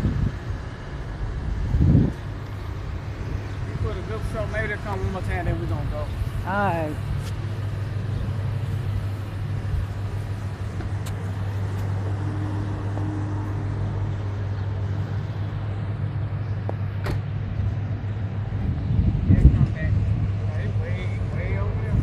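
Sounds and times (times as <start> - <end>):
low engine rumble: 0.0 - 22.0.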